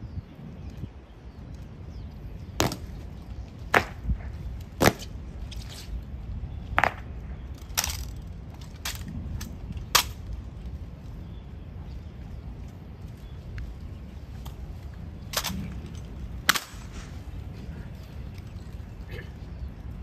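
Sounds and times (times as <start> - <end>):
sharp drill strike cracks: 2.6 - 3.0, 16.5 - 17.1.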